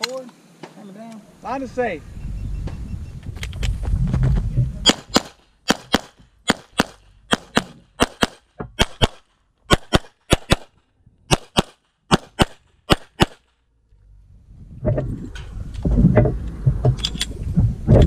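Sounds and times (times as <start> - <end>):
pistol shots: 4.8 - 10.7, 11.3 - 13.4.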